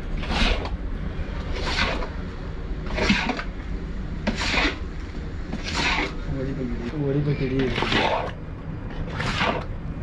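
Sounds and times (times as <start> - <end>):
steady low hum: 0.0 - 10.0
spatula scraping a wok: 0.2 - 0.7, 1.5 - 2.1, 2.9 - 3.5, 4.2 - 4.9, 5.5 - 6.2, 7.6 - 8.4, 9.1 - 9.7.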